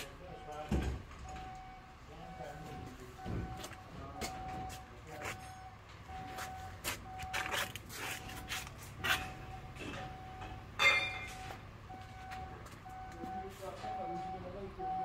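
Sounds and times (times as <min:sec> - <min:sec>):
knocks and clanks: 0:00.0 - 0:01.6, 0:03.2 - 0:04.7, 0:09.1 - 0:12.8
sharp metallic clank: 0:10.4 - 0:11.5.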